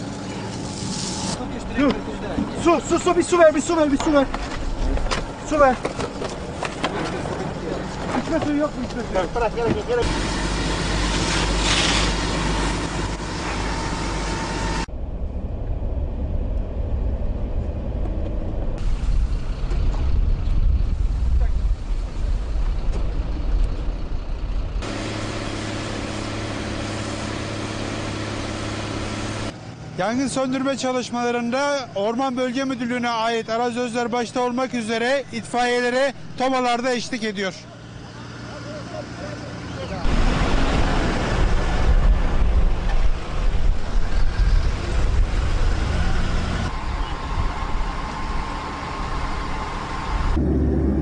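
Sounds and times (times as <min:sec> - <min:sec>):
steady high whine: 0:00.0 - 0:51.0
truck engine droning: 0:00.0 - 0:51.0
wind rumble on microphone: 0:14.9 - 0:24.8, 0:40.1 - 0:51.0.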